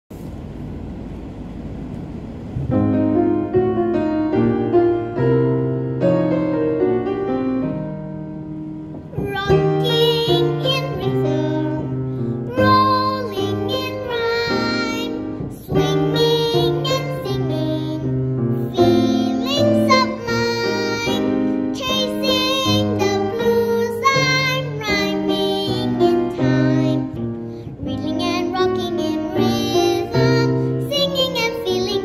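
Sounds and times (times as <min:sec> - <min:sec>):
keyboard and bass: 0:02.5 - 0:23.8.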